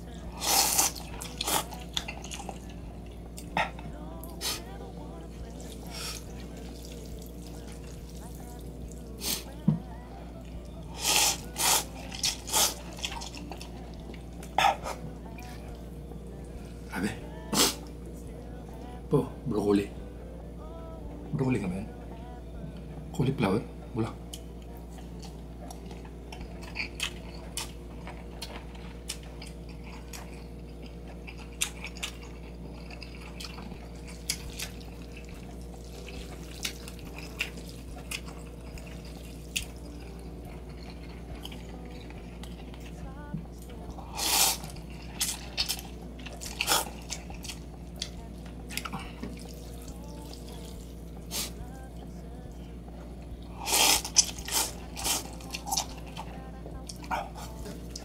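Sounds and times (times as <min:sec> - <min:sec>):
steady low hum: 0:00.0 - 0:58.0
chewing sounds: 0:00.1 - 0:04.7, 0:10.4 - 0:15.9, 0:24.3 - 0:58.0.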